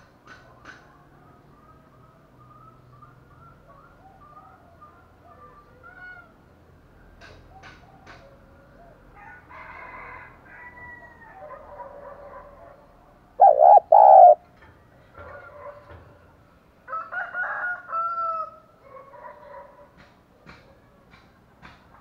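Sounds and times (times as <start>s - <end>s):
dove cooing: 13.4s - 14.4s.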